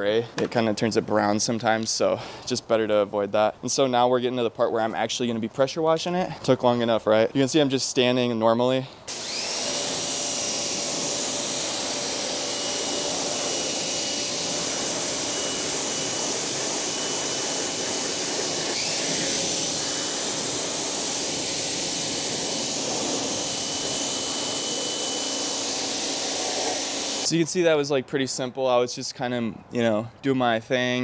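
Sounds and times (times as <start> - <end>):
pressure washer water hiss: 9.1 - 27.3
high whine: 9.2 - 27.4.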